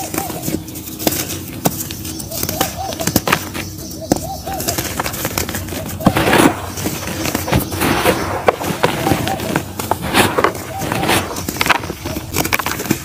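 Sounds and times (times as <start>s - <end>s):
dry mud crunching: 0.0s - 13.0s
gritty rustle of crumbs: 4.6s - 13.0s.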